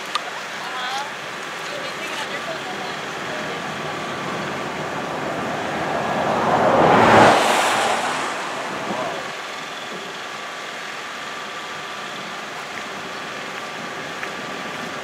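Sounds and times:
vehicle passing on road: 0:02.5 - 0:09.7.

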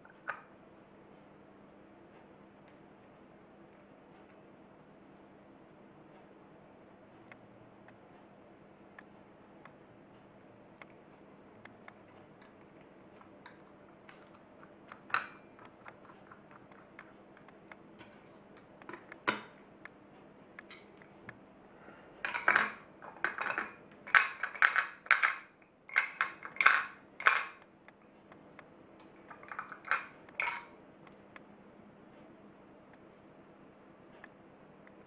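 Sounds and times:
plastic parts clacking: 0:22.2 - 0:27.6, 0:29.2 - 0:30.7.

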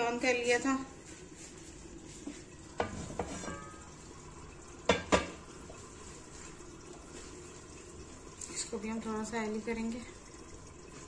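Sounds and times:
faint frying sizzle: 0:00.0 - 0:11.0
metal cookware knocking: 0:02.8 - 0:03.8.

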